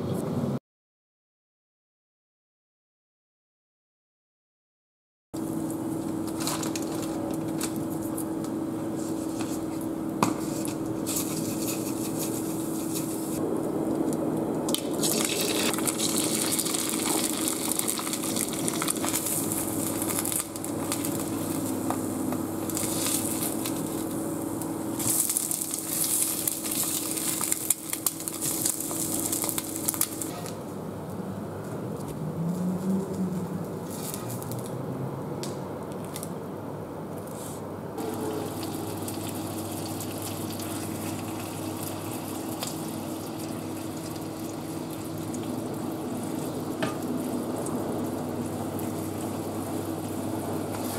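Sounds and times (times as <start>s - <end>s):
steady low hum: 5.4s - 50.9s
eggs frying with crackles: 9.2s - 30.4s, 38.0s - 50.9s
oil sizzling in a frying pan: 14.7s - 30.3s, 38.0s - 50.9s.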